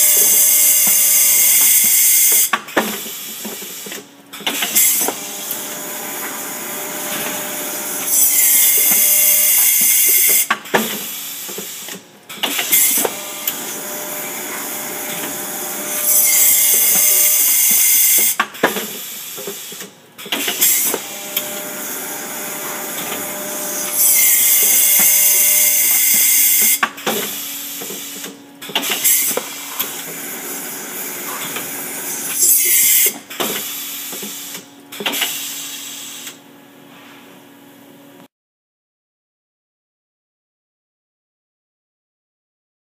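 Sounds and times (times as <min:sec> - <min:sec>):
machine hissing bursts: 0:00.0 - 0:36.4
pneumatic clamps clunking: 0:02.3 - 0:05.6, 0:10.1 - 0:13.8, 0:18.2 - 0:21.6, 0:26.6 - 0:30.2, 0:31.2 - 0:36.4.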